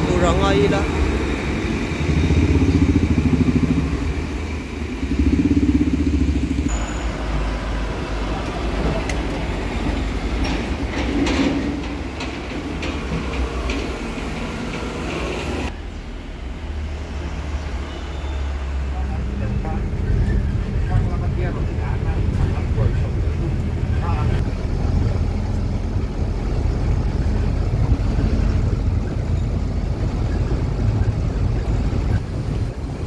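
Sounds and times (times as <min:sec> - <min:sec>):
motorcycles and scooters passing: 0:00.4 - 0:09.0.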